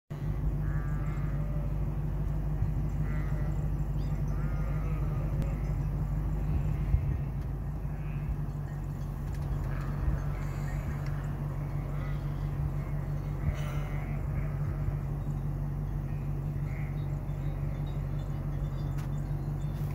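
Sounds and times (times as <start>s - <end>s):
steady low rumble: 0.1s - 19.9s
sheep bleating: 0.6s - 2.1s, 3.0s - 5.9s, 6.6s - 8.6s, 9.6s - 15.2s, 16.0s - 18.2s.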